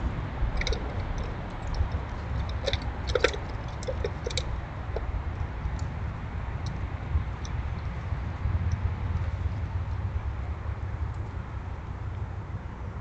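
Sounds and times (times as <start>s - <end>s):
squirrels cracking seeds: 0.0s - 6.0s
low rumble: 0.0s - 12.1s.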